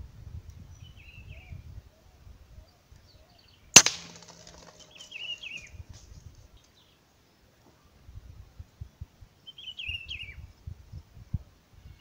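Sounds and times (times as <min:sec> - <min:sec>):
rifle shot: 0:03.8 - 0:05.1
small birds chirping: 0:04.6 - 0:05.8, 0:09.4 - 0:11.1.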